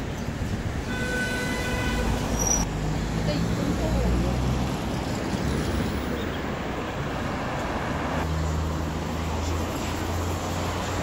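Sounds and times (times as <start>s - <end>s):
passing cars: 0.0s - 11.0s.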